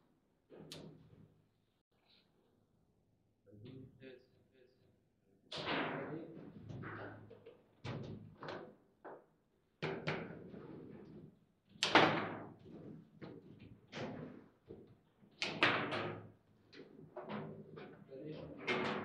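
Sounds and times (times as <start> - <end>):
table football knocks and clacks: 6.8 - 11.1.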